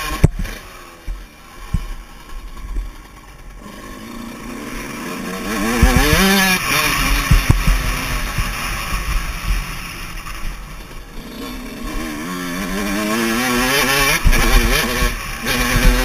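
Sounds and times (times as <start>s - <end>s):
motocross engine revving: 0.0s - 16.0s
low thumps: 4.8s - 16.0s.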